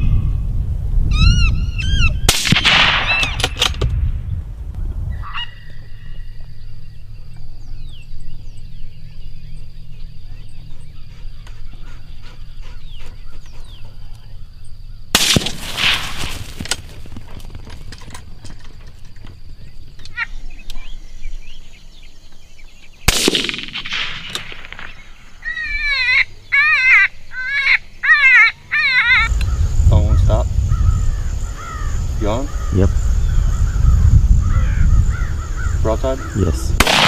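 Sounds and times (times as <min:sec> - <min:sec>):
rifle shot: 0:02.3 - 0:04.0, 0:15.1 - 0:16.8, 0:23.1 - 0:25.3, 0:36.8 - 0:37.0
short pitched calls: 0:24.5 - 0:29.7.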